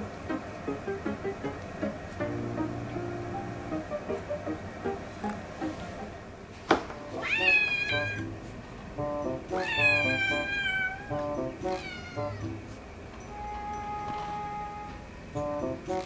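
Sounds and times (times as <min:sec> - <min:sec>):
kitten meowing: 0:07.2 - 0:08.3, 0:09.6 - 0:11.1, 0:11.7 - 0:12.5.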